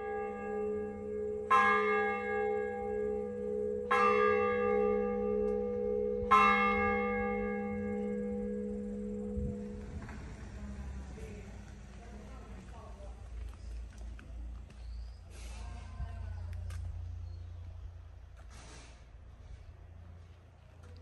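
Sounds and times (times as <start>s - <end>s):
church bell tolling: 0.0s - 10.0s.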